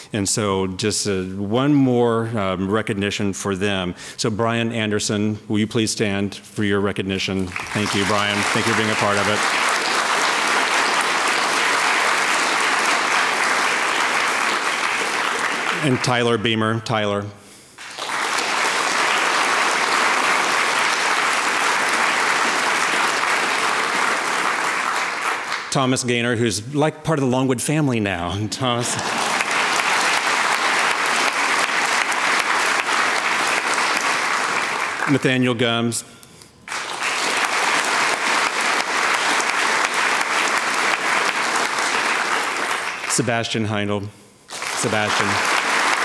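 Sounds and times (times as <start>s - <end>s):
audience applauding: 7.4s - 16.6s, 17.8s - 26.0s, 28.6s - 35.5s, 36.7s - 43.7s, 44.5s - 46.0s.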